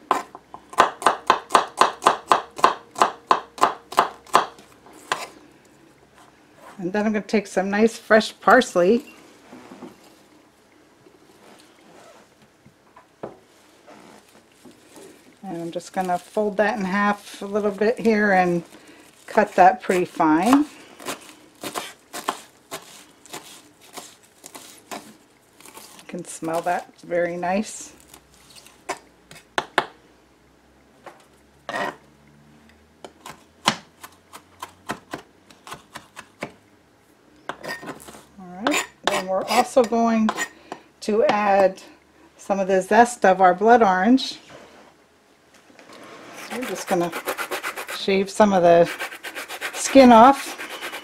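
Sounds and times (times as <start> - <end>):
knife chopping on plastic board: 19.9 - 25.1.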